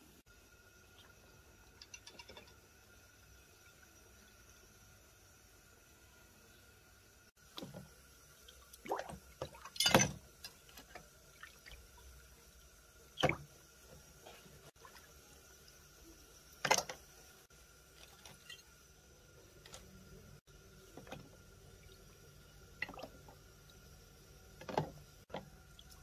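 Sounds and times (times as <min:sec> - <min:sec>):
splashes and drips in liquid: 0:07.4 - 0:12.1.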